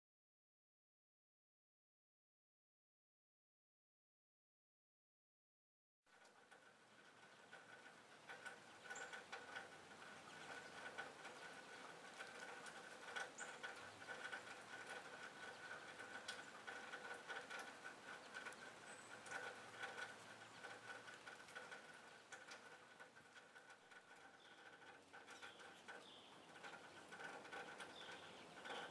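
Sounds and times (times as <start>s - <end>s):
soft ticks and taps: 6.2s - 28.9s.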